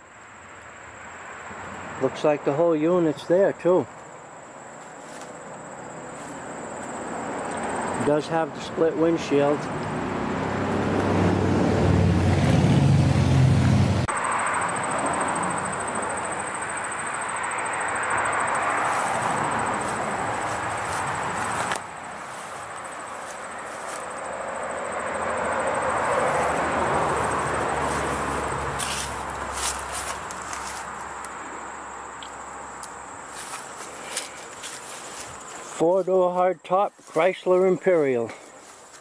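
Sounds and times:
passing vehicle noise: 0:00.1 - 0:36.5
low engine drone: 0:09.6 - 0:34.7.

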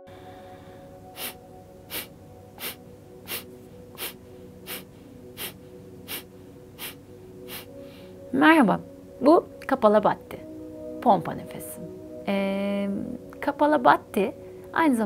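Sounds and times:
forceful nasal exhalations: 0:01.1 - 0:08.1.

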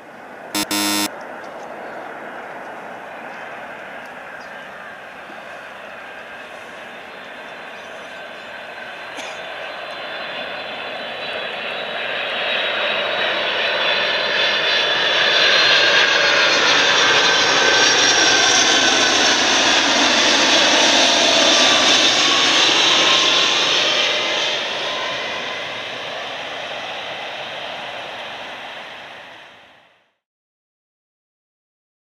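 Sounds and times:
high-pitched metallic engine whine: 0:00.6 - 0:01.1
jet aircraft passing low: 0:05.8 - 0:29.8.

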